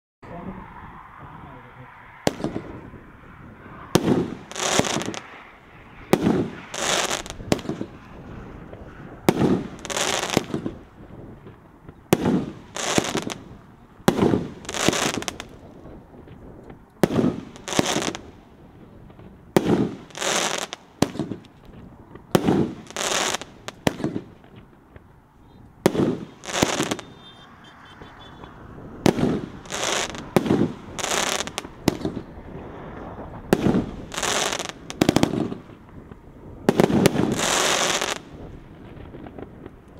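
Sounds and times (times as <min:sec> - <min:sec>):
fireworks cake double bangs: 0:12.1 - 0:15.6, 0:19.5 - 0:21.4, 0:36.6 - 0:38.5.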